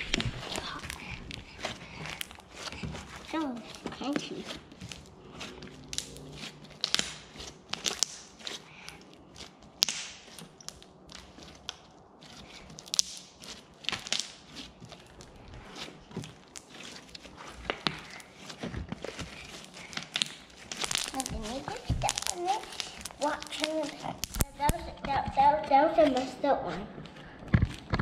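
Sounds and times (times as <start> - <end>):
crunchy slime clicking and popping: 5.9 - 15.4, 19.0 - 25.1.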